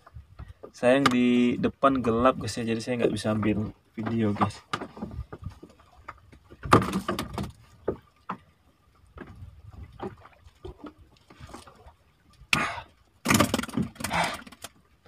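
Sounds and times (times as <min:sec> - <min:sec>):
knocks on wooden boat: 0:06.5 - 0:08.4.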